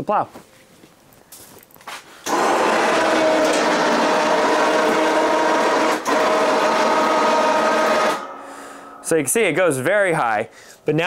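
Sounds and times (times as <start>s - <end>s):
electric winch motor whine: 2.2s - 9.0s.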